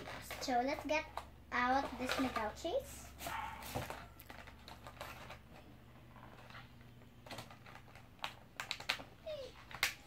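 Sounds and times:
plastic wrapper crinkling: 3.9s - 5.6s, 6.2s - 10.0s.

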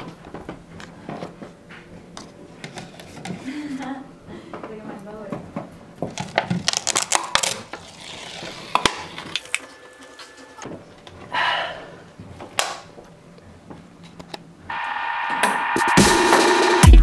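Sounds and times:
electronic music: 14.7s - 17.0s.

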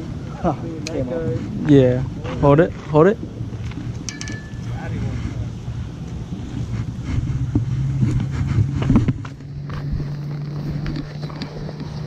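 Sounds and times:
wind noise on microphone: 0.0s - 12.0s
low motor hum: 3.1s - 12.0s.

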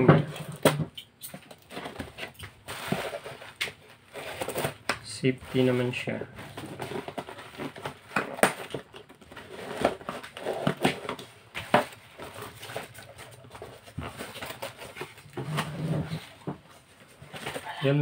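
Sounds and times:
cardboard box rustling and scraping: 1.7s - 18.0s.

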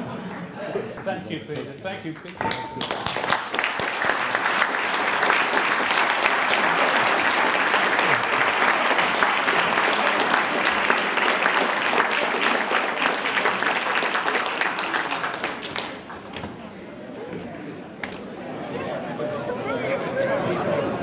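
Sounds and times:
audience applauding: 1.5s - 16.3s.

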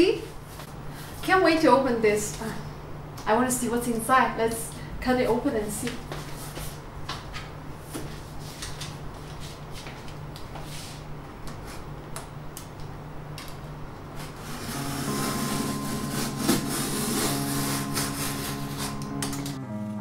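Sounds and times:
box cutter slicing cardboard: 14.2s - 19.2s
background music: 14.4s - 20.0s.

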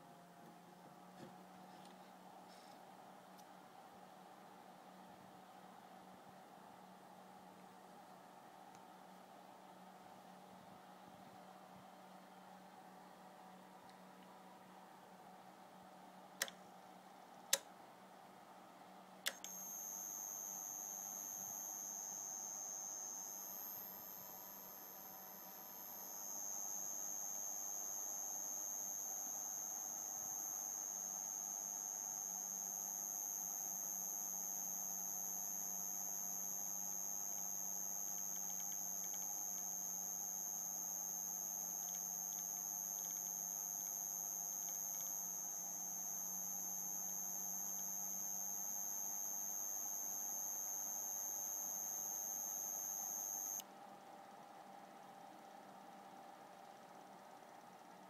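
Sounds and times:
low electrical hum: 0.0s - 58.0s
high-pitched inverter whine: 19.3s - 53.7s.

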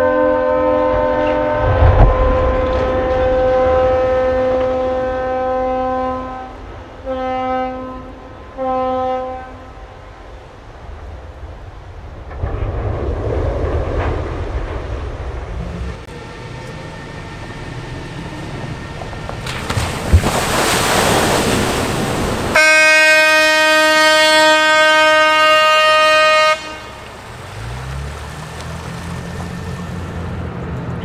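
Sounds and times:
steady horn blast: 0.0s - 9.9s, 22.5s - 27.1s
low rumble: 1.3s - 4.9s, 10.9s - 20.6s
vehicle splashing into water: 18.4s - 23.5s, 26.0s - 30.4s.

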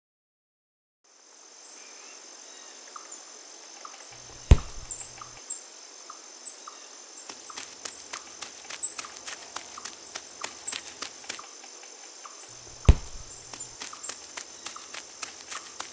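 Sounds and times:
crickets trilling: 1.1s - 15.9s
sharp knock with low thud: 4.2s - 5.4s, 12.6s - 13.6s.

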